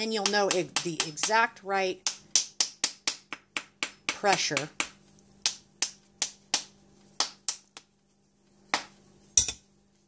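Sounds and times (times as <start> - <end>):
metal spoon tapping mold: 8.8 - 9.7.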